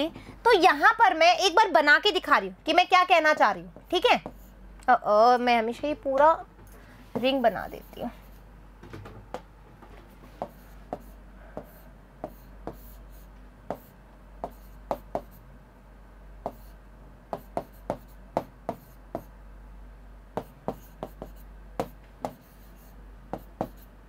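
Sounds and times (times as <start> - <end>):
pen tapping and stroking on surface: 3.8 - 4.5, 10.3 - 15.4, 16.4 - 16.7, 17.3 - 19.3, 20.4 - 22.7, 23.3 - 23.9.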